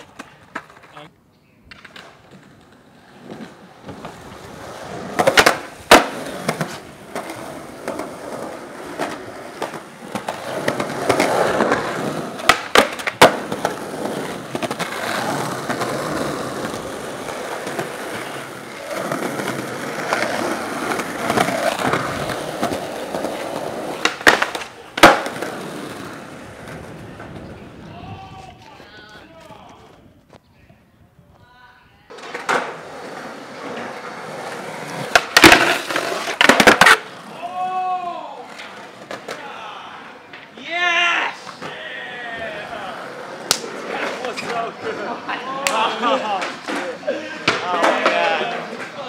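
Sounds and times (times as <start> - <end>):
skateboard cracks: 0.0 - 27.5, 32.1 - 37.5, 43.0 - 49.0
skateboard wheels rolling on pavement: 0.0 - 31.5, 32.1 - 49.0.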